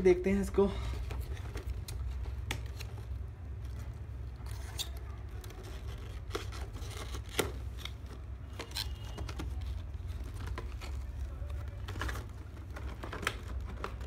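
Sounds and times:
paper rustling: 0.9s - 14.0s
cardboard scrapes and clicks: 4.4s - 14.0s.

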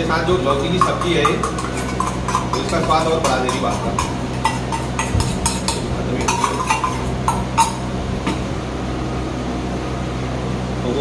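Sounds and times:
steel bowl clinking on plate: 0.4s - 8.4s.

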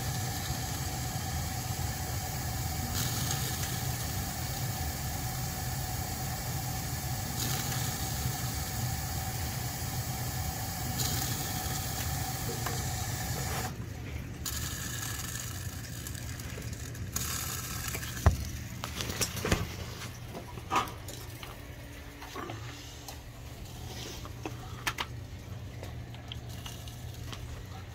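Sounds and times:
gas burner rushing hiss: 0.0s - 13.8s, 14.4s - 16.2s.

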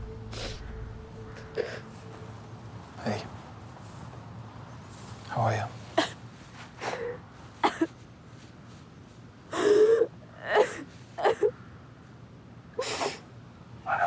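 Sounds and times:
woman sobbing: 0.1s - 2.1s, 9.5s - 11.5s.

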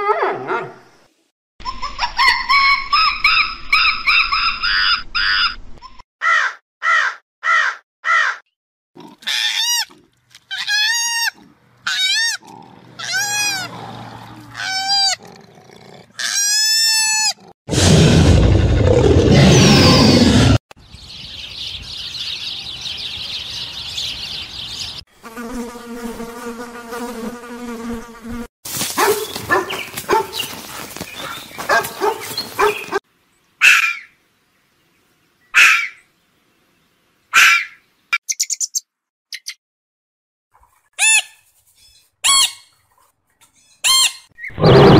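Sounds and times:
rising and falling animal calls: 1.6s - 8.4s, 9.0s - 20.6s, 43.9s - 44.9s
low steady animal call: 9.0s - 17.5s
harsh roar: 12.4s - 16.3s, 17.4s - 20.6s, 44.6s - 44.9s
insect-like buzz: 25.1s - 28.5s.

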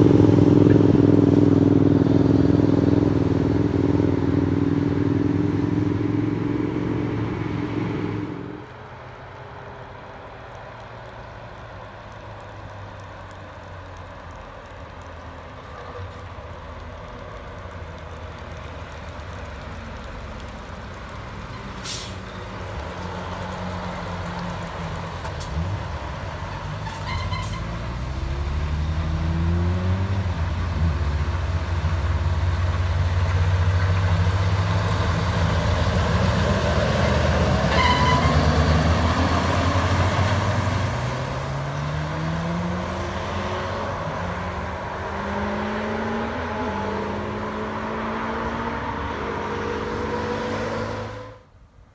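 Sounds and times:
truck diesel engine: 0.0s - 51.8s
air brakes hissing: 21.8s - 22.3s.

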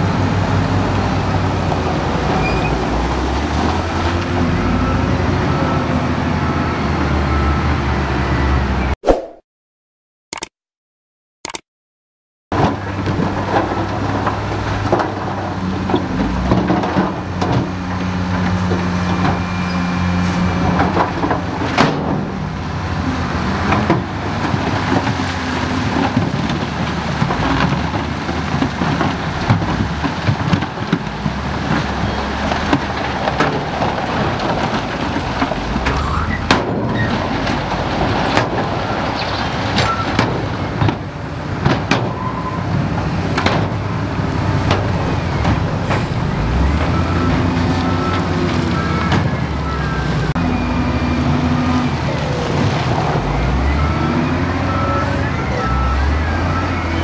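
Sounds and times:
heavy machine diesel engine: 0.0s - 8.9s, 12.6s - 57.0s
gravel rumble: 12.5s - 57.0s.

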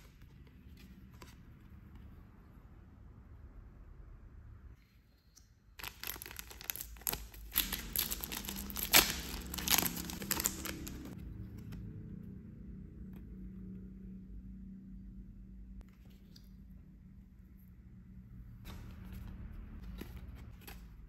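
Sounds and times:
plastic sachet crinkling and tearing: 5.8s - 11.2s.

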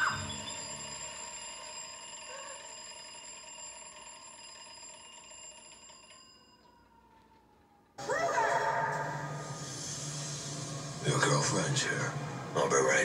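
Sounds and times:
bell-like synthesizer chord: 0.0s - 2.6s.

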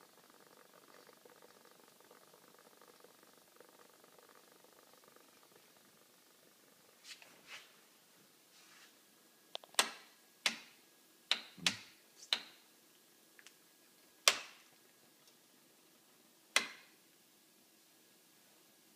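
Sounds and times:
toggle switches clicking on metal: 9.6s - 10.7s, 11.3s - 12.6s, 14.2s - 14.6s, 16.6s - 16.9s.

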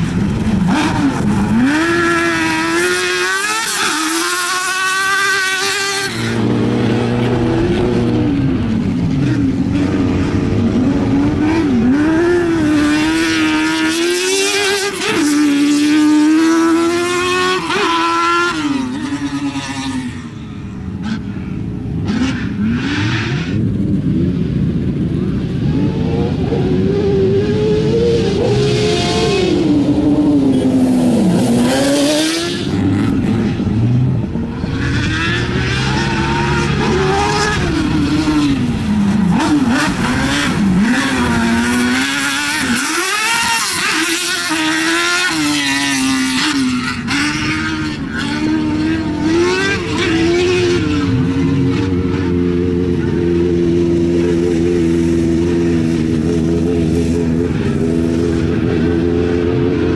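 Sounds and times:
buggy engine revving: 0.0s - 59.9s.

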